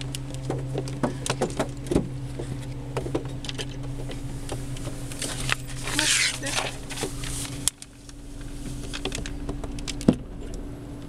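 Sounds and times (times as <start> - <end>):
parrot beaks tapping on car: 0.0 - 5.0, 9.0 - 10.6
steady low hum: 0.0 - 11.0.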